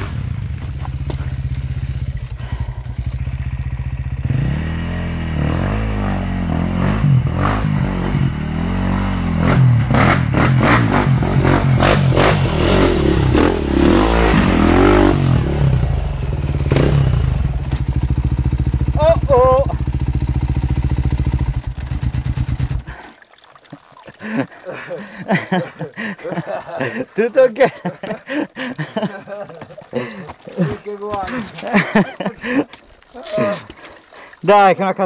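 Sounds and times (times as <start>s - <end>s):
dirt bike engine revving: 0.0s - 23.0s.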